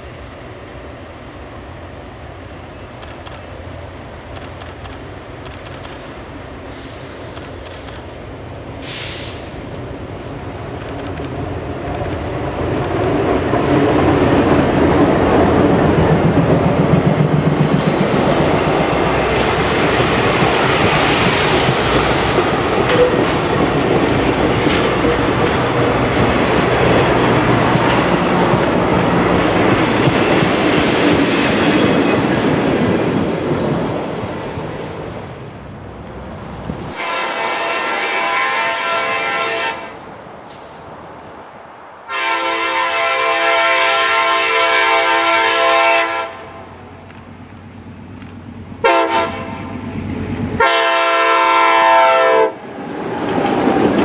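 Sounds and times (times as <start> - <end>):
train wheels clattering on rail: 6.7 - 35.0, 52.6 - 54.0
locomotive horn blasts: 37.0 - 40.0, 42.1 - 46.7, 48.8 - 49.7, 50.6 - 52.6.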